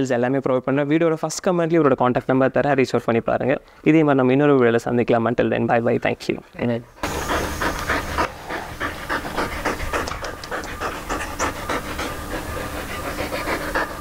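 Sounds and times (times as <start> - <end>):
dog panting: 6.3 - 14.0.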